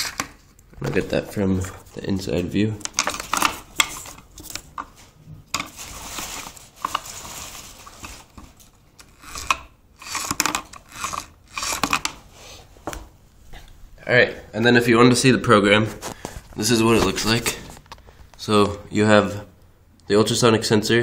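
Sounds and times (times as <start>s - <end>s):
plastic bricks rustling and clicking: 2.8s - 12.2s.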